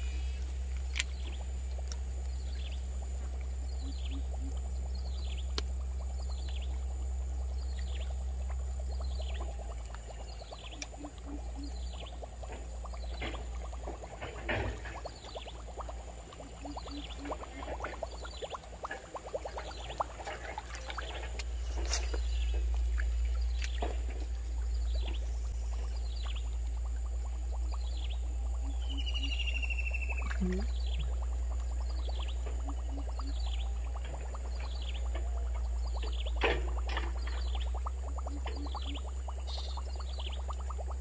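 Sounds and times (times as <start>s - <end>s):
steady low rumble: 0.0s - 41.0s
animals chirping: 16.4s - 22.7s.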